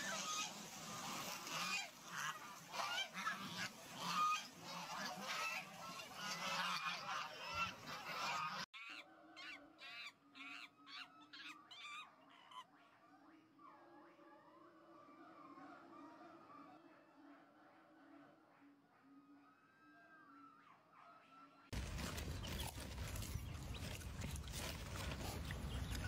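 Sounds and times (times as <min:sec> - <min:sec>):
flowing water: 0:00.0 - 0:08.1
geese honking: 0:00.0 - 0:11.6.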